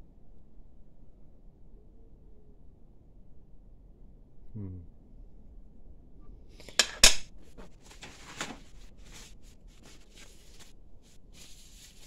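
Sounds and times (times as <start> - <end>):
metal objects clacking on sheet metal: 6.6 - 7.3
light clicks and rustling: 6.6 - 10.7.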